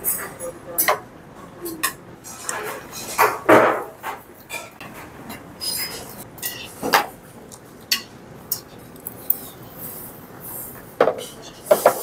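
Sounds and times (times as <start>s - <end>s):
brass bowls and spoons clinking: 5.6s - 6.8s.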